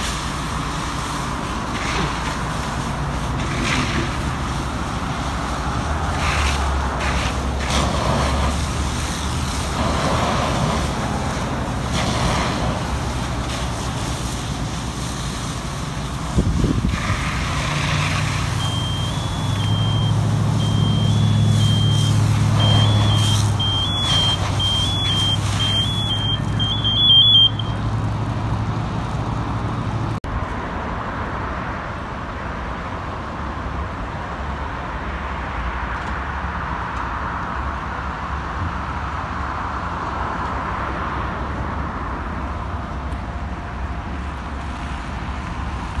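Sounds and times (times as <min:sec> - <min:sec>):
hose spraying water: 0:00.0 - 0:30.0
diesel engine running: 0:00.0 - 0:30.2
wind on microphone: 0:16.3 - 0:17.2
high broken beeping: 0:18.6 - 0:27.9.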